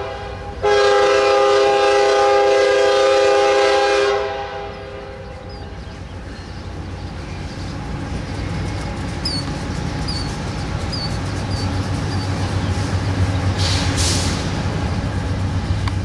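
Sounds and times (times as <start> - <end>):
diesel locomotives rumbling: 0.0 - 16.0
brief air hiss: 13.6 - 14.7.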